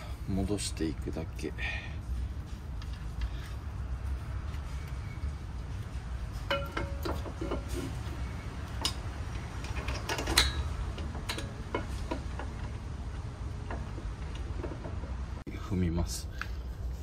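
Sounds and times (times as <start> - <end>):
steady low rumble: 0.0 - 17.0
bolts turned with hand tool: 6.4 - 15.4.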